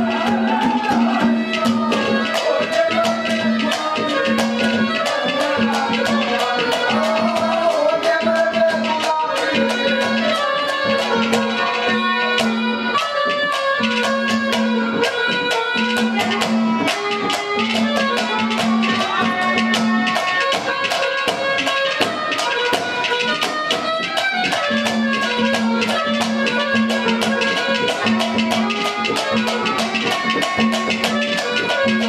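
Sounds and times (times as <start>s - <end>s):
rapid dense drumming: 0.0s - 11.8s
reed melody: 0.0s - 32.0s.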